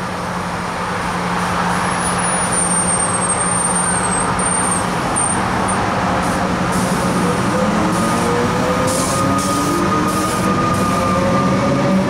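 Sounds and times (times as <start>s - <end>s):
train high whine: 6.2s - 12.0s.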